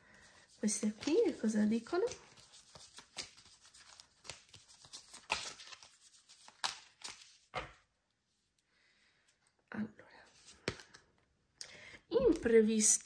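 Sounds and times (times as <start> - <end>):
cards being shuffled: 0.4 - 7.8, 10.4 - 11.1.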